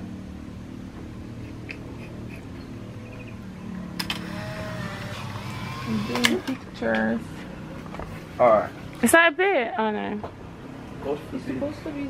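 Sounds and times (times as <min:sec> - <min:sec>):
camera handling clicks and rubbing: 0:01.4 - 0:02.6.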